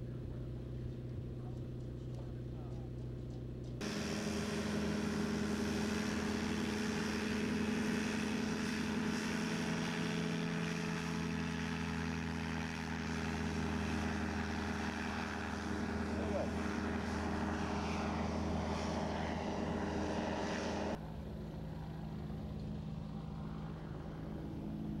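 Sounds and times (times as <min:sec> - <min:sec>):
propeller plane engine drone: 0:00.0 - 0:25.0.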